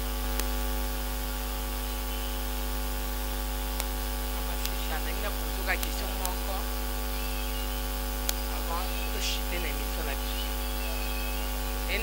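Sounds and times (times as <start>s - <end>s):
electrical mains hum: 0.0s - 12.0s
microphone hiss: 0.0s - 12.0s
small clicks: 0.3s - 0.6s, 3.7s - 8.6s.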